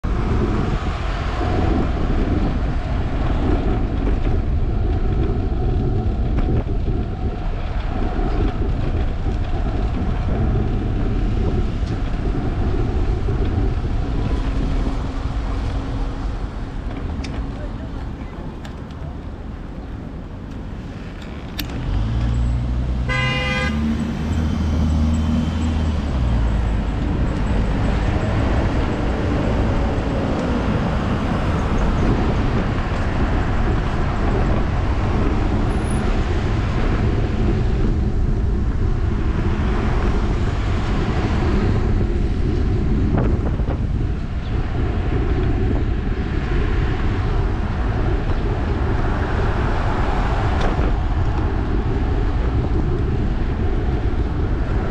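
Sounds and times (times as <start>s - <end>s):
road rumble: 0.0s - 54.9s
wind buffeting: 0.0s - 54.9s
vehicle horn toot: 23.0s - 24.0s.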